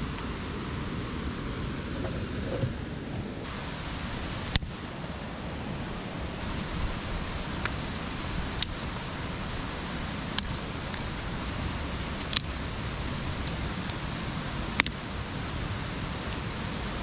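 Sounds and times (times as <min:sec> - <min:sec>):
steady rushing background noise: 0:00.0 - 0:17.0
sticks snapping: 0:08.5 - 0:08.8, 0:10.3 - 0:11.1, 0:12.1 - 0:12.5, 0:14.7 - 0:15.6.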